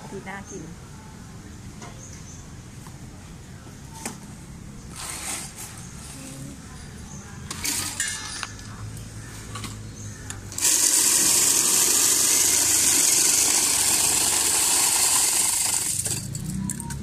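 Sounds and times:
electric ice crusher hissing: 0:10.5 - 0:16.1.

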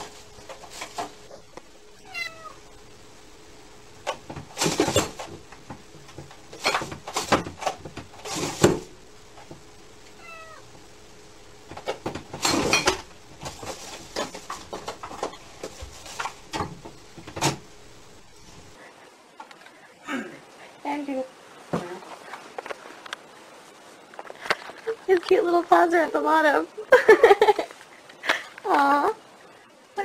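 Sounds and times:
cat meowing: 0:02.0 - 0:02.6, 0:10.2 - 0:10.6.

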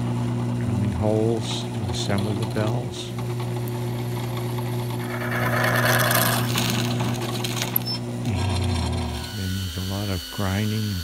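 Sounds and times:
drill motor hum: 0:03.2 - 0:11.0
drill bit cutting metal: 0:05.0 - 0:06.8, 0:08.8 - 0:11.0.

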